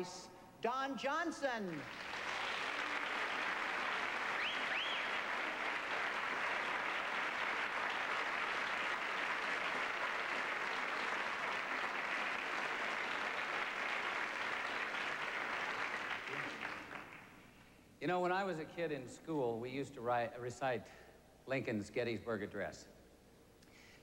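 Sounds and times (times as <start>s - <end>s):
audience applauding: 1.8s - 17.5s
crowd whistling: 2.2s - 9.0s.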